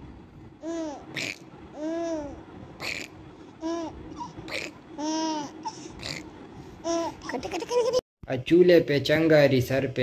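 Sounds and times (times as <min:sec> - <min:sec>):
baby cooing and babbling: 0:00.6 - 0:03.0, 0:03.6 - 0:05.8.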